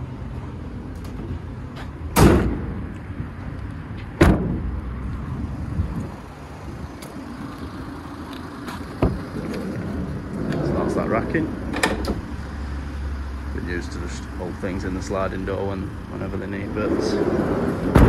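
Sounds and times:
van doors slamming: 2.1 - 2.8, 4.2 - 4.7, 9.0 - 9.6, 11.5 - 12.4, 17.3 - 18.0
diesel engine idling: 4.5 - 18.0.

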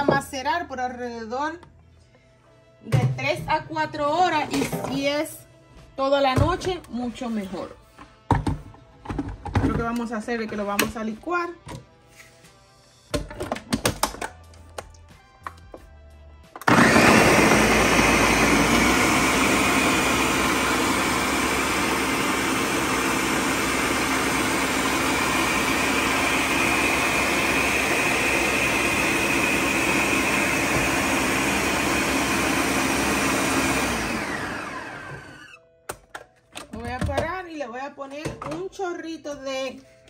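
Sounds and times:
blender running: 16.6 - 35.6.

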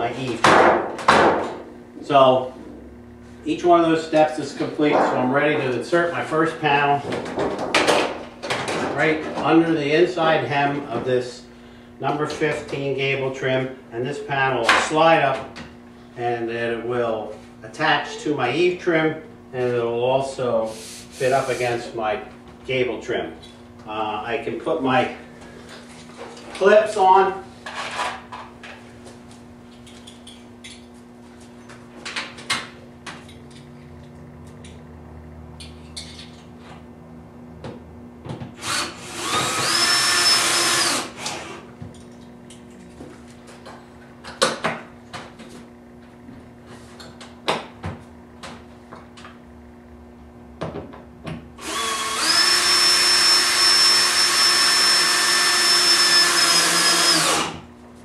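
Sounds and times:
steady low hum: 0.0 - 58.0
power drill whining: 38.6 - 41.6, 51.6 - 57.6.

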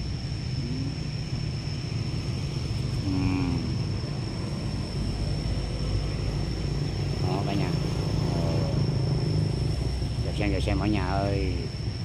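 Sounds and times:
low engine drone: 0.0 - 12.0
thin high whine: 0.0 - 12.0
low moan-like call: 0.6 - 1.2, 3.0 - 4.0.

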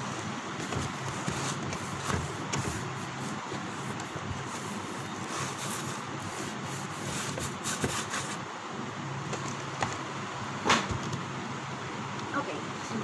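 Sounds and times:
steady low hum: 0.0 - 13.0
cardboard box rubbing and scraping: 0.5 - 8.4.

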